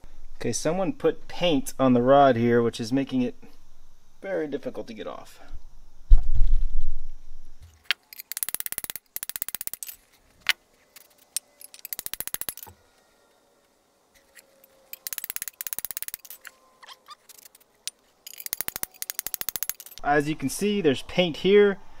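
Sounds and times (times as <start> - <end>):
ratchet wrench clicking: 8.1 - 10.0, 11.0 - 12.8, 14.9 - 16.5, 17.2 - 20.0.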